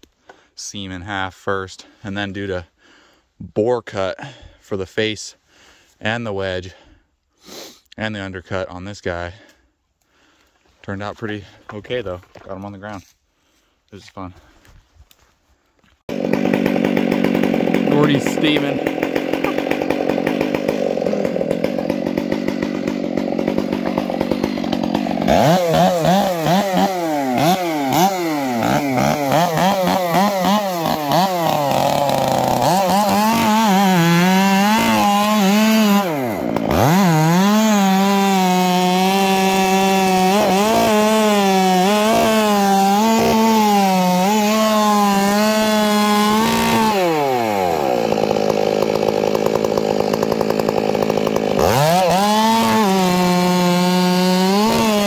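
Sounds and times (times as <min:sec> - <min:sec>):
chainsaw cutting log: 0:16.0 - 0:55.0.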